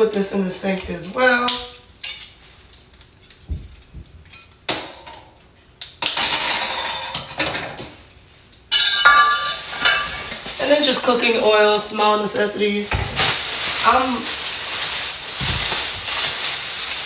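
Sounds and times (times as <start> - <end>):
items clattering: 0.0 - 17.0
groceries rustling: 8.4 - 17.0.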